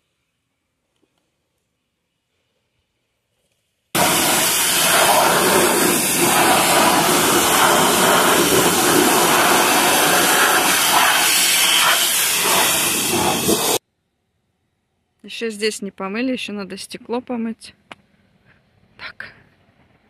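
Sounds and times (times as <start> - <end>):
pressure washer spraying: 4.0 - 13.8.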